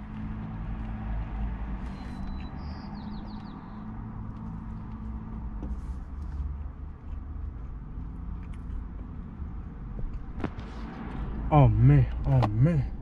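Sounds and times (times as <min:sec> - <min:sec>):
bird chirping: 0:01.8 - 0:04.0.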